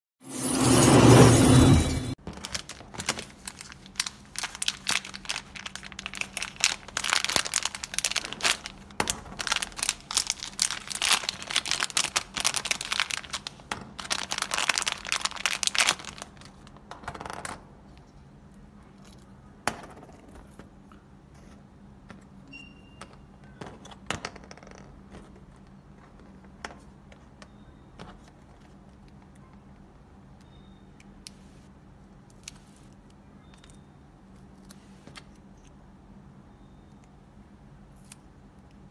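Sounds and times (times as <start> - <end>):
foil pouch crinkling: 2.2 - 16.8.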